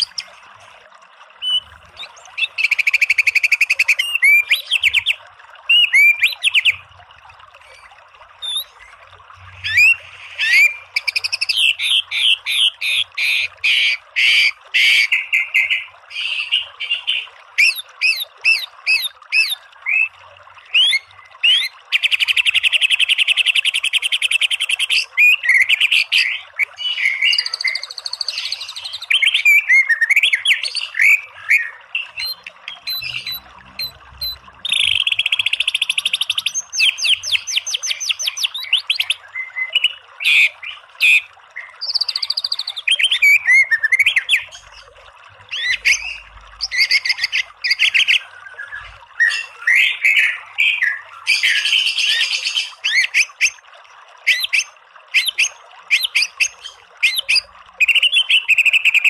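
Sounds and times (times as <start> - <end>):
songbird whistling and chirping: 1.4 - 6.8, 8.4 - 8.8, 9.6 - 12.3, 25.2 - 40.4, 41.6 - 44.5, 55.2 - 59.0
buzzy bird trill: 31.5 - 35.7.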